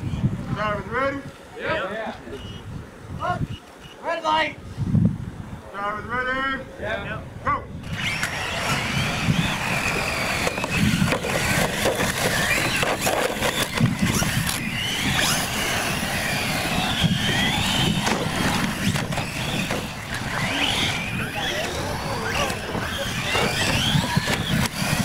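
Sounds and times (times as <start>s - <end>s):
toy truck motors whining: 7.8s - 25.0s
toy cars knocking: 7.9s - 25.0s.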